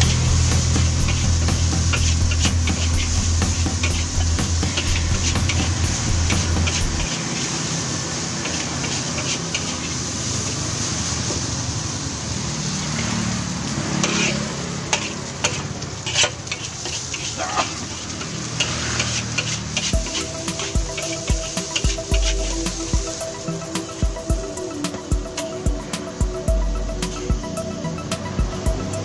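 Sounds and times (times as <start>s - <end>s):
music: 0.0s - 7.1s, 19.9s - 29.0s
spatula clinking and scraping wok: 0.0s - 7.7s, 8.3s - 10.9s, 14.0s - 26.2s
rice sizzling in a wok: 0.0s - 29.0s.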